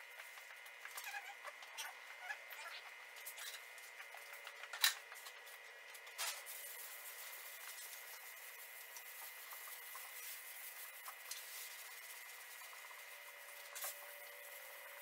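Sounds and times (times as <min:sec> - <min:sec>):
sandpaper rubbing: 0:06.5 - 0:15.0.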